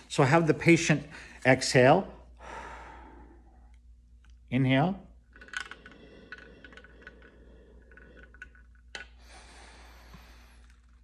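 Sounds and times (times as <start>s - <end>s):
slow breath drawn through tubing: 5.4s - 11.0s.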